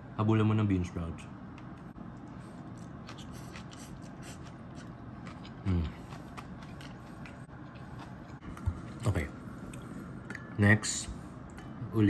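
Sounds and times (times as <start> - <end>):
man chewing: 2.0 - 10.5
man humming: 5.6 - 6.0.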